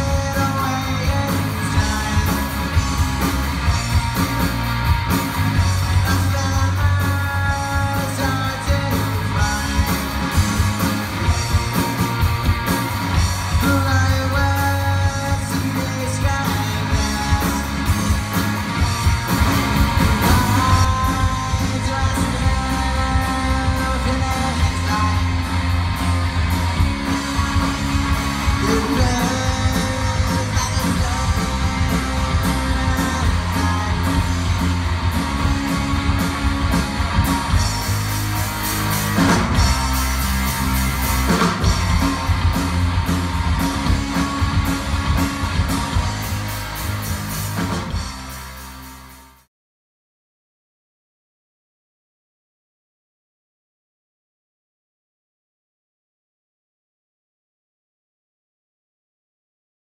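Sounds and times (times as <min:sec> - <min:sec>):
person singing lead vocal: 0:00.0 - 0:02.7, 0:05.9 - 0:10.2, 0:13.5 - 0:17.9, 0:20.1 - 0:25.5, 0:28.5 - 0:34.5
drum kit beat: 0:00.0 - 0:49.2
electric guitar: 0:00.0 - 0:49.4
electric bass: 0:00.0 - 0:49.5.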